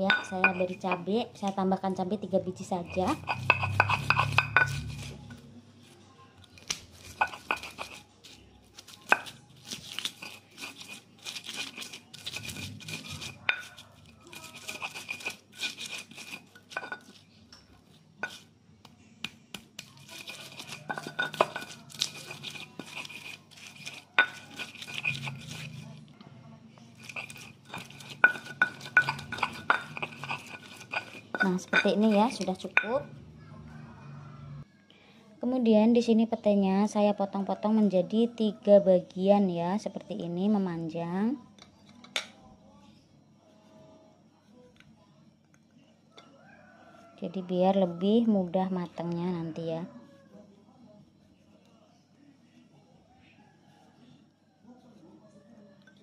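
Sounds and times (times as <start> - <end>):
stone pestle pounding: 0.0 - 1.1, 2.8 - 5.2, 7.0 - 8.0, 9.0 - 17.2, 19.2 - 25.8, 27.0 - 33.1
stone-on-stone scraping: 0.0 - 1.6, 2.4 - 18.6, 19.2 - 26.0, 26.8 - 33.2.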